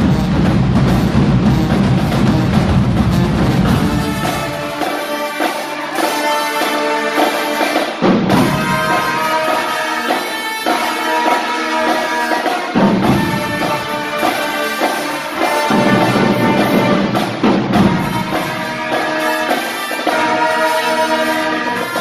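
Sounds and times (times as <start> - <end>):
bass drums: 0.0 - 4.8
marching band playing: 0.0 - 22.0.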